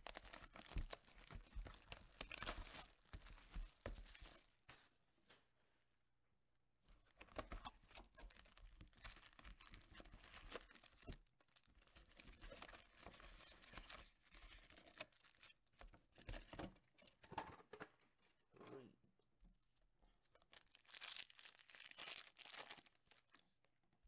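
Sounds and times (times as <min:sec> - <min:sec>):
foil packs handled: 0:00.0 - 0:04.5, 0:07.2 - 0:15.6, 0:20.5 - 0:23.4.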